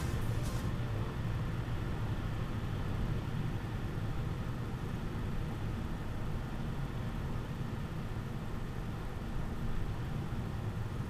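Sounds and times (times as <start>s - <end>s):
tyre and road noise: 0.0s - 1.2s.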